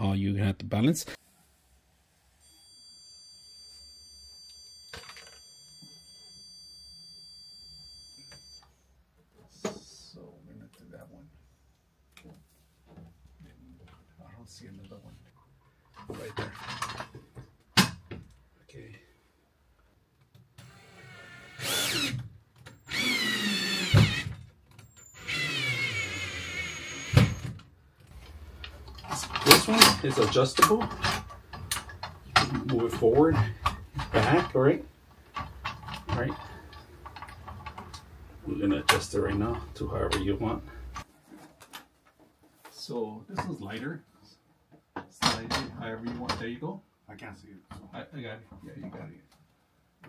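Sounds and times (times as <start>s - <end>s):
drill motor whine: 20.6s - 22.2s, 22.8s - 24.3s, 24.9s - 27.5s.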